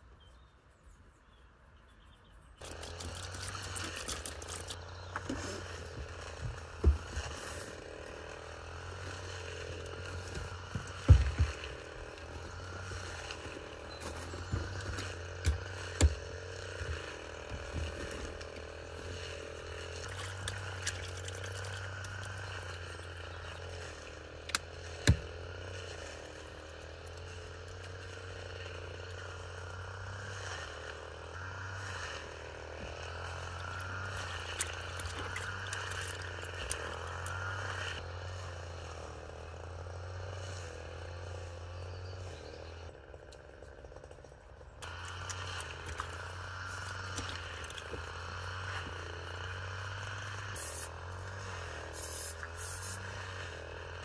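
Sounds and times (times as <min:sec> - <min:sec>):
hands splashing water in a basin: 0:02.6 - 0:04.8, 0:20.0 - 0:22.4, 0:34.2 - 0:37.3, 0:46.8 - 0:47.9.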